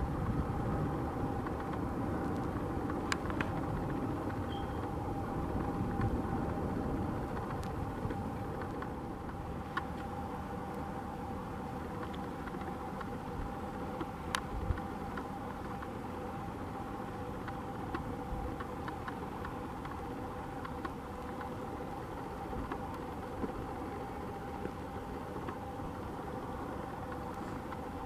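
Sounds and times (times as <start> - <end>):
engine hum: 0.0 - 28.0
faint clicks: 20.6 - 21.6.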